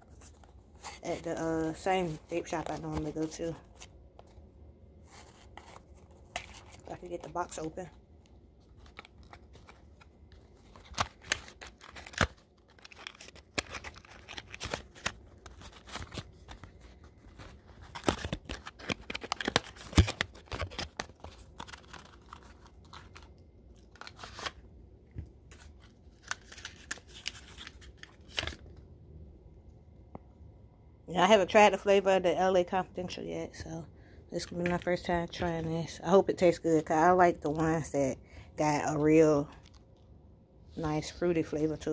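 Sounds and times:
packaging rustling: 0:05.0 - 0:08.0, 0:08.6 - 0:24.7, 0:25.5 - 0:28.7
packaging tearing: 0:08.7 - 0:24.6, 0:25.5 - 0:28.6.

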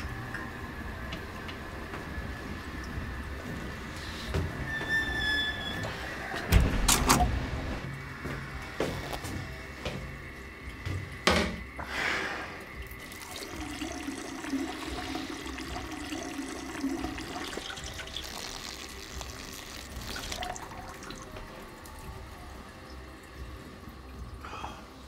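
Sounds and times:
urine splashing into toilet: 0:12.5 - 0:22.6.

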